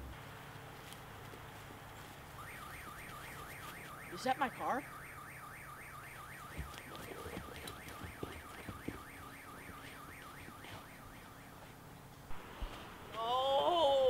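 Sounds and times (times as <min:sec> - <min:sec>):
car alarm warbling: 0:02.4 - 0:12.0.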